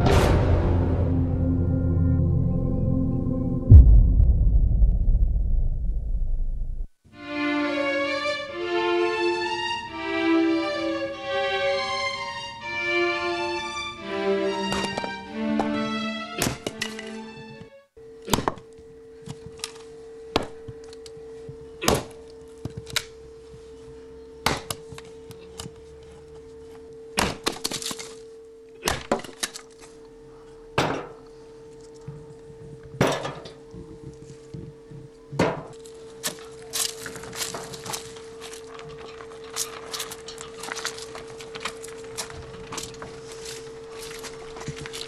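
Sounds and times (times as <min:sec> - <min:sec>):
steady low hum: 0:00.3 - 0:07.0
sharp knocks and cracks: 0:24.4 - 0:24.8, 0:27.2 - 0:28.0.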